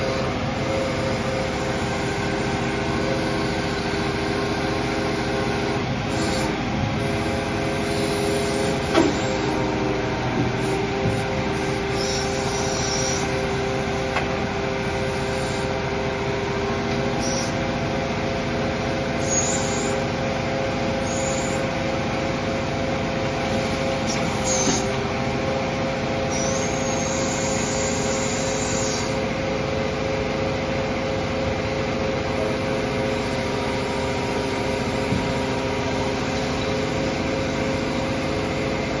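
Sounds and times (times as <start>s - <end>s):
hydraulic system humming and whining: 0.0s - 39.0s
high hydraulic hisses: 10.6s - 13.4s, 17.2s - 17.6s, 19.2s - 20.0s, 21.0s - 21.6s, 26.3s - 29.2s.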